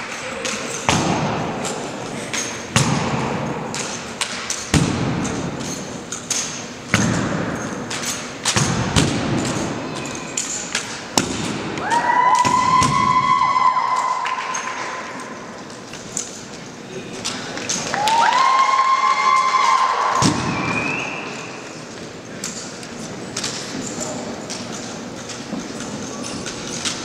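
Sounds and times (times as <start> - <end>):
steady high whistle-like tone: 20.4 - 21.7.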